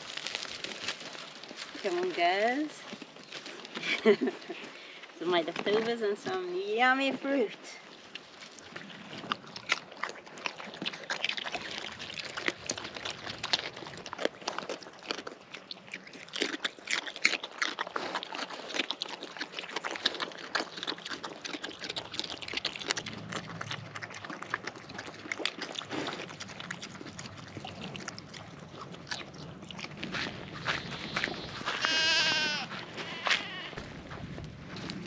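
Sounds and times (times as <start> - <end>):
pigs chewing food: 0.0 - 35.0
goat bleating: 30.9 - 33.8.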